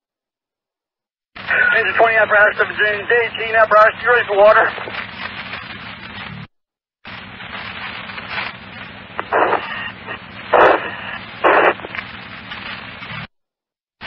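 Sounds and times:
radio static hiss: 1.4 - 6.5, 7.1 - 13.3
harsh noise bursts: 7.1 - 13.3.

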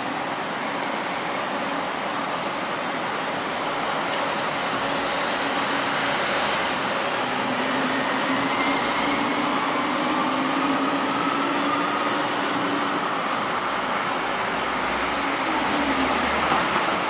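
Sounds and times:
tram wheels rumbling on rails: 0.0 - 17.0.

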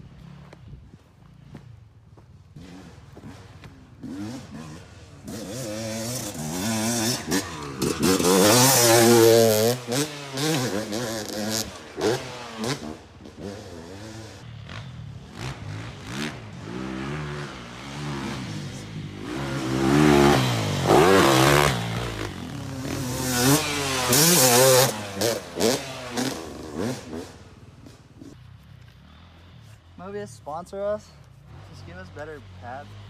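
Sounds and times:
dirt bike engine revving: 2.4 - 28.5.

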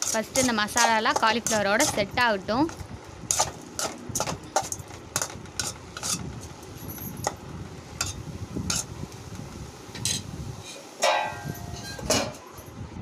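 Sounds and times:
metal spoon scraping pan: 0.0 - 2.1, 3.3 - 6.3, 8.0 - 8.9
low sizzle: 0.0 - 13.0.

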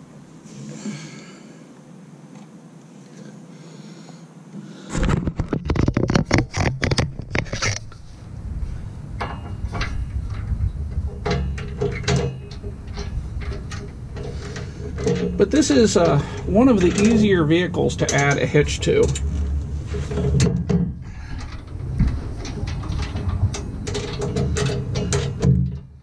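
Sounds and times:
rustling and scraping: 4.6 - 26.0
sharp clicks and knocks: 4.9 - 8.0, 9.2 - 26.0.

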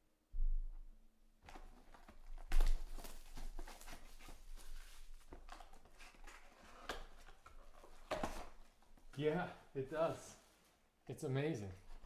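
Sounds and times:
plastic wrap crackling and rustling: 1.4 - 9.3.

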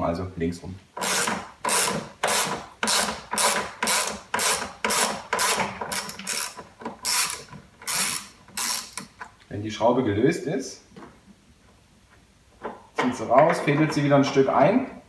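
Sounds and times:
socket ratchet clicking: 1.0 - 9.1.

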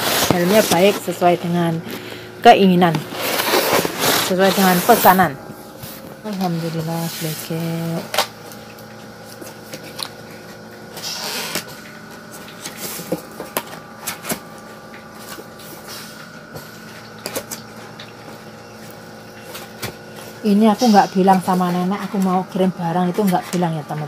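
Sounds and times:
steady machine hum: 0.0 - 24.0
cardboard box rustling: 3.0 - 6.8.

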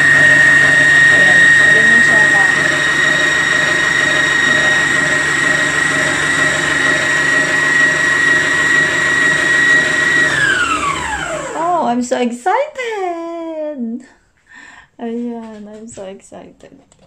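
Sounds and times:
stand mixer motor whining: 0.0 - 11.7.

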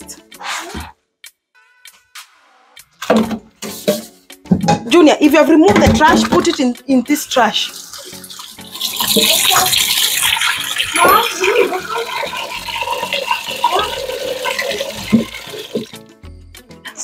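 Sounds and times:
water running: 5.7 - 16.1.

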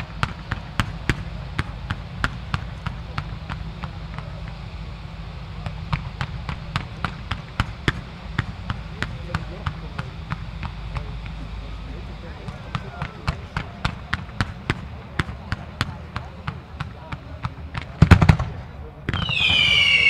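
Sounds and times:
steady low rumble: 0.0 - 20.0
fireworks popping and banging: 12.4 - 20.0.

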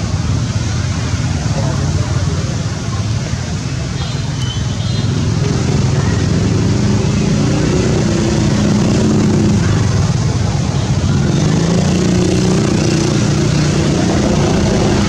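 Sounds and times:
vehicle engine droning: 5.1 - 15.0
background rumble: 13.6 - 15.0.

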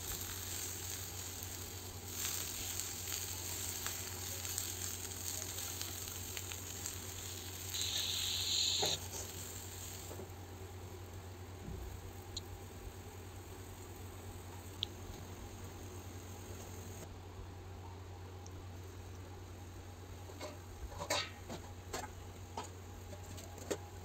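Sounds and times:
vegetables sizzling in a frying pan: 0.0 - 17.1.

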